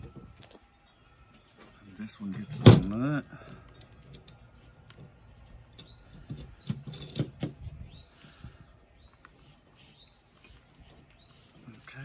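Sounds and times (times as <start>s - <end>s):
bird chirping: 0.5s - 11.8s
clicks and knocks of metal parts: 3.5s - 7.6s.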